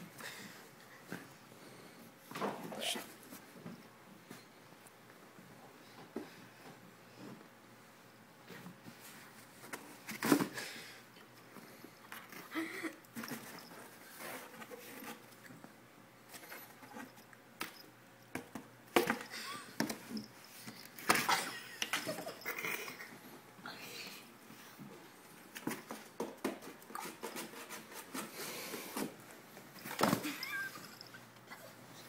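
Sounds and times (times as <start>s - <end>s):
kittens scratching on cardboard: 26.8s - 28.7s.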